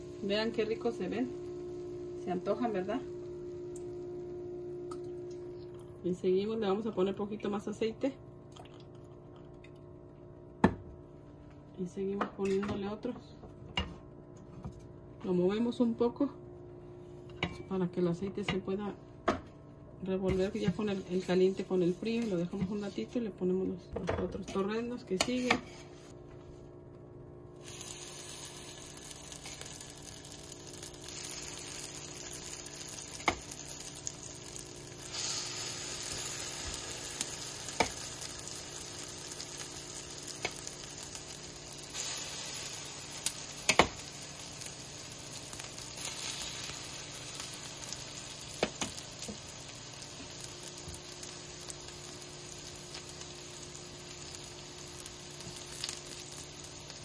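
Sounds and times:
fritters sizzling in hot oil: 0:27.6 - 0:57.0.

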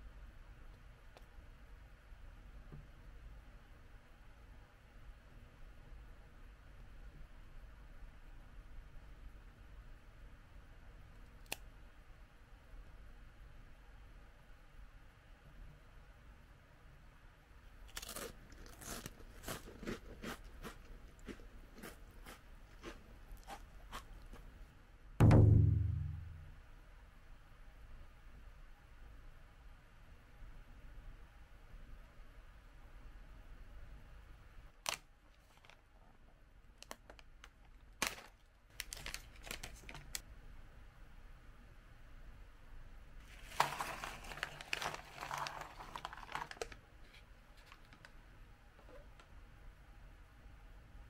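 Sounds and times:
biscuit crunching: 0:17.8 - 0:24.5, 0:43.4 - 0:46.8
snack pouch ripping open: 0:17.9 - 0:20.4, 0:38.0 - 0:40.2, 0:43.4 - 0:46.8
foil bag crinkling: 0:38.0 - 0:40.2, 0:43.3 - 0:46.8.

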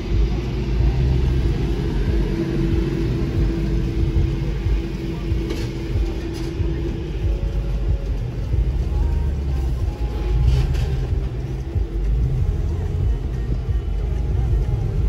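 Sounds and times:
car engine and tyres rumbling: 0:00.0 - 0:15.0
steady hum: 0:00.0 - 0:15.0.

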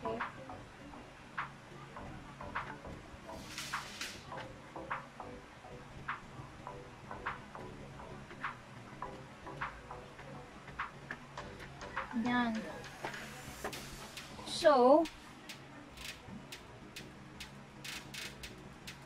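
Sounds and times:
light ticking: 0:13.6 - 0:19.0
faint clicks: 0:15.0 - 0:19.0.

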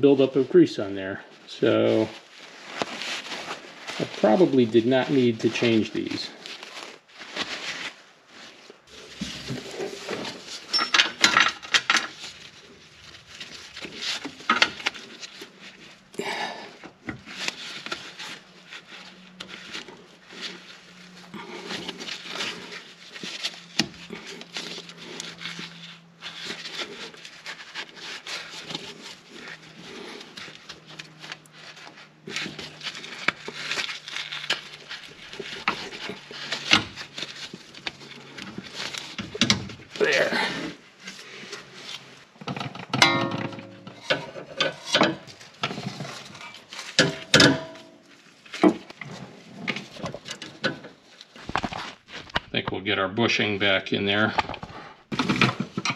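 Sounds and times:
hands scraping rubber on metal: 0:16.7 - 0:52.2.

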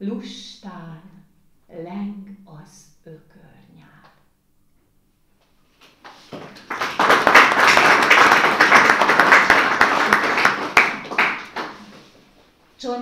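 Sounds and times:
audience applauding: 0:06.1 - 0:12.0.

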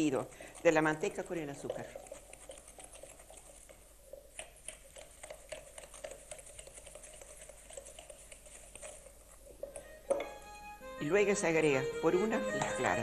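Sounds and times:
utensil scraping glass bowl: 0:00.0 - 0:09.9.

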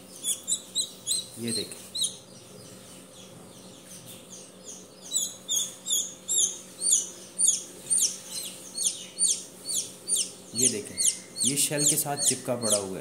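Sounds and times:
chick peeping: 0:00.0 - 0:13.0.

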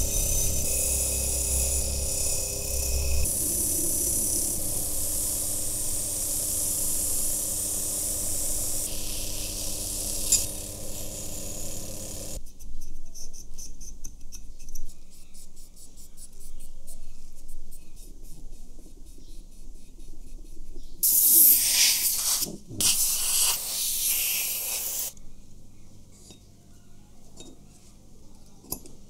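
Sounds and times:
rotary tool motor whine: 0:00.0 - 0:12.4
cotton swab scratchy rubbing: 0:21.6 - 0:25.1.

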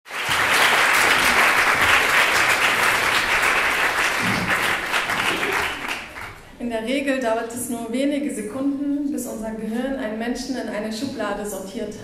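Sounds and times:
audience applauding: 0:00.1 - 0:06.4.

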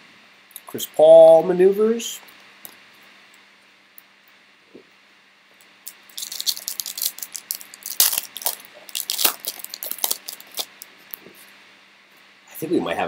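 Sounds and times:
foil wrapper tearing and crinkling: 0:05.8 - 0:10.9.

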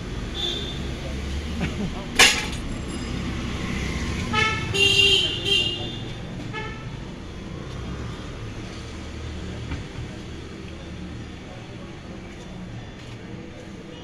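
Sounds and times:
road traffic rumble: 0:00.0 - 0:14.0
vehicle horns honking: 0:00.3 - 0:00.9, 0:04.2 - 0:07.0.

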